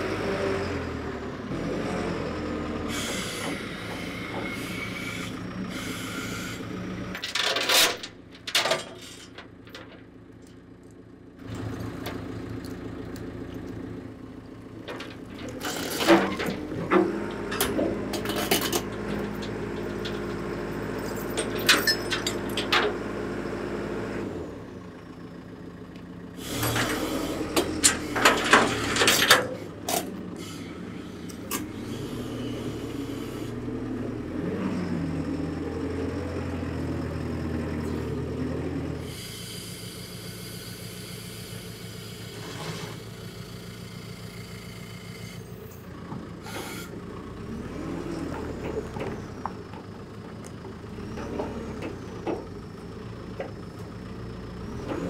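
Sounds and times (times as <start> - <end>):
diesel engine running under load: 0.0 - 55.0
metal clanking and knocks: 7.1 - 10.2, 14.7 - 23.0, 26.6 - 30.1.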